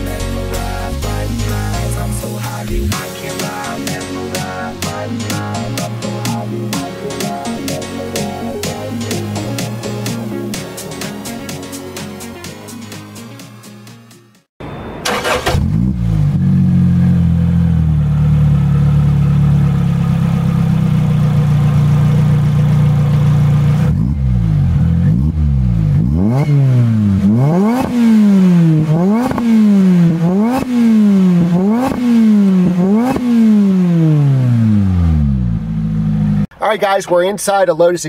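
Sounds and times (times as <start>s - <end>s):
car engine starting and idling: 14.6s - 37.2s
car engine revving: 15.0s - 36.5s.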